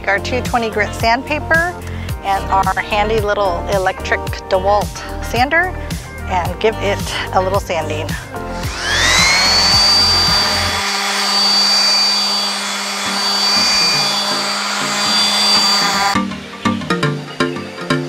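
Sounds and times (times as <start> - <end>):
orbital sander sanding wood: 8.1 - 16.2.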